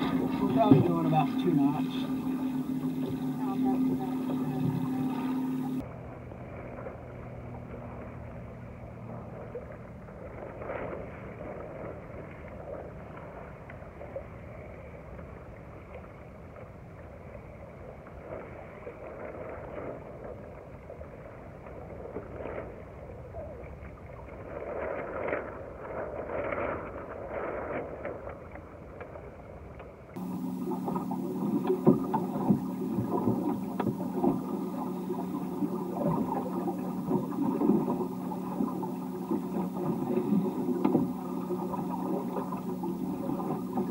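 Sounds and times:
water splashing against boat hull: 0.0 - 14.2, 23.6 - 43.9.

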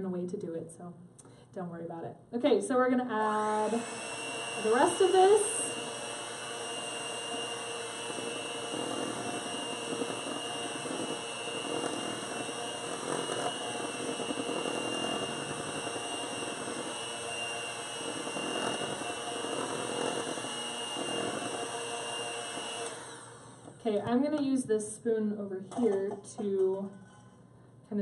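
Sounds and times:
electric hand mixer whine: 3.2 - 23.8.

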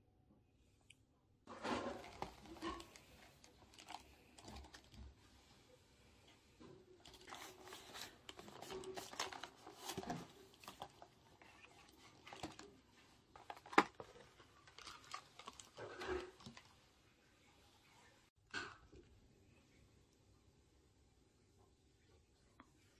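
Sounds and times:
plastic container crinkling: 1.5 - 5.2, 7.0 - 16.9.

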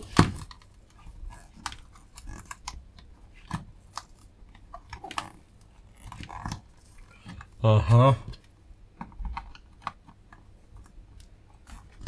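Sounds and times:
clicks and scrapes of prying plastic: 0.0 - 7.6.

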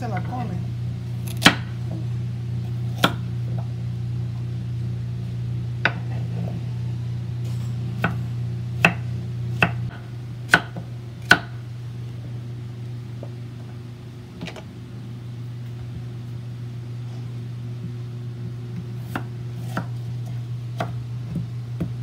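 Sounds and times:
low hum: 0.0 - 22.0
knife chopping on wooden board: 1.2 - 1.7, 2.9 - 3.3, 5.8 - 6.1, 8.0 - 8.2, 8.8 - 11.6, 18.7 - 22.0.

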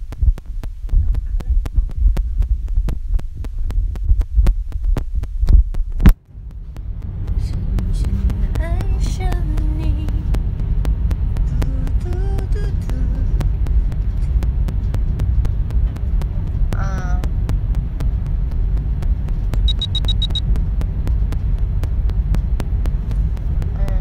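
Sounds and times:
train carriage rumble: 6.2 - 24.0
quick high beeps: 19.6 - 20.5.

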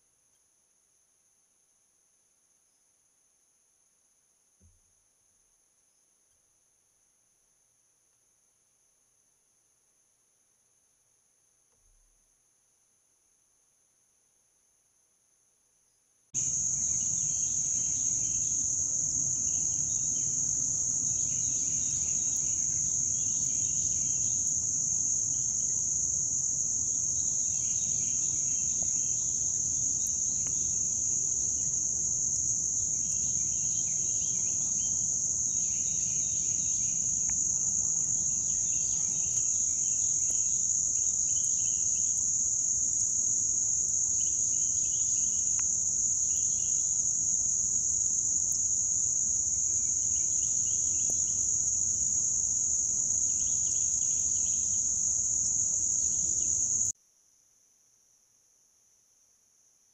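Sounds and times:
lower chirring insect calls: 0.0 - 57.0
high-pitched insect drone: 16.4 - 56.9.

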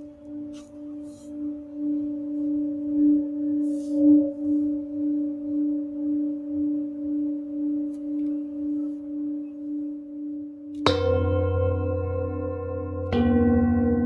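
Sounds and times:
singing bowl ringing: 0.0 - 14.0
deep metal instrument struck: 10.7 - 14.0.

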